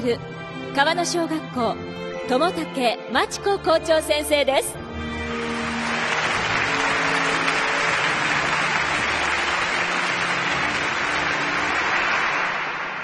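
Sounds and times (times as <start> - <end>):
audience applauding: 5.2 - 13.0.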